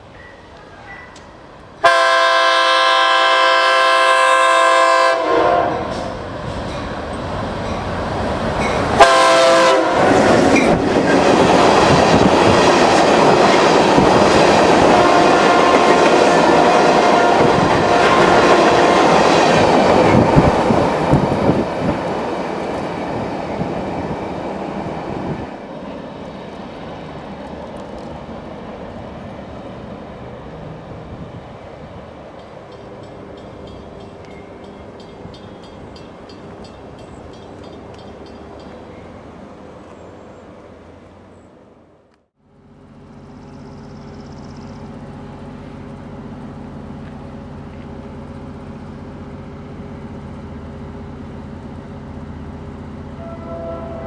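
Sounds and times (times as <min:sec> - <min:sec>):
train wheels rumbling on rail: 0:00.0 - 0:41.6, 0:42.7 - 0:54.0
locomotive air horn: 0:01.8 - 0:06.2, 0:09.0 - 0:10.2, 0:14.8 - 0:19.1, 0:53.1 - 0:54.0.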